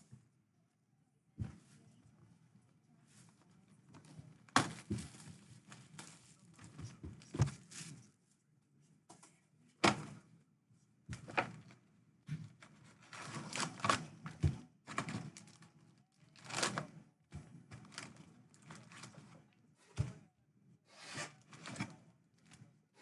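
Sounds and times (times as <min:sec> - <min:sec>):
card packs tapping and rustling: 0:04.0 - 0:08.0.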